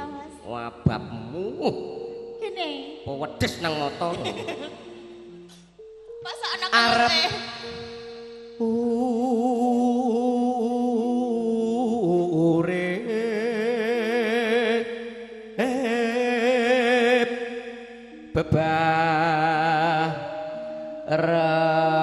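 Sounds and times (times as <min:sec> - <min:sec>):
held musical accompaniment: 0:00.3 - 0:09.9
person singing long wavering notes: 0:01.2 - 0:22.0.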